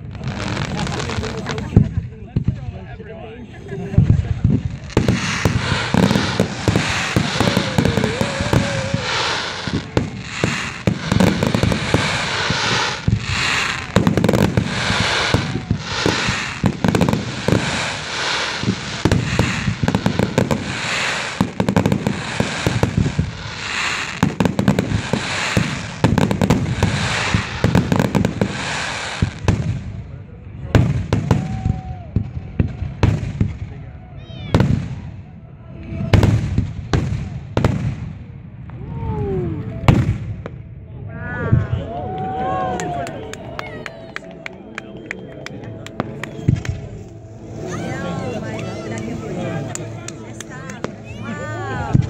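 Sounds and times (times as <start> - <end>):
dense crackling: 0.0 - 2.6, 4.0 - 29.4
fireworks shells bursting: 4.5 - 29.4.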